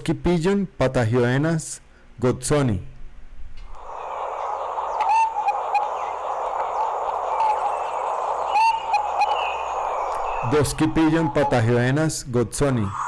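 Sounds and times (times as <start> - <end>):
background hiss: 0.0 - 13.0
pigeon calling: 3.8 - 12.0.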